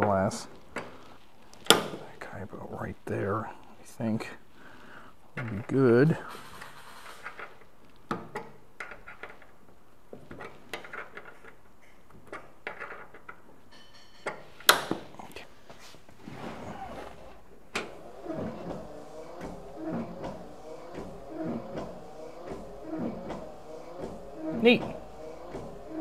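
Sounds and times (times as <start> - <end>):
wiper motor whirring: 16.6 - 26.0.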